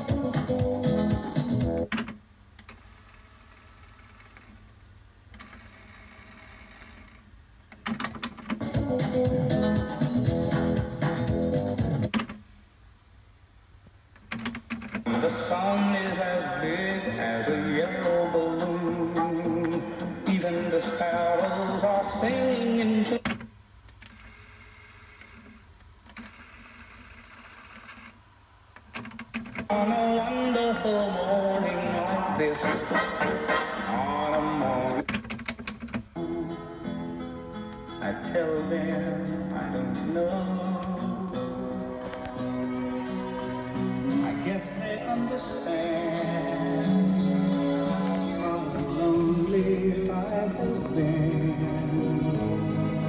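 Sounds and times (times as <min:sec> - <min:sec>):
music playing from tape: 0:00.0 - 0:01.9, 0:08.4 - 0:12.2, 0:15.0 - 0:23.3, 0:29.6 - 0:35.0, 0:36.2 - 0:53.0
cassette tape whirring: 0:00.0 - 0:12.4, 0:14.2 - 0:28.1
cassette mechanism clicks: 0:01.8 - 0:02.8, 0:07.7 - 0:08.8, 0:12.0 - 0:12.4, 0:14.1 - 0:15.1, 0:23.2 - 0:24.2, 0:28.7 - 0:29.8, 0:35.0 - 0:36.1
tape winding with motor whirr: 0:24.0 - 0:28.2.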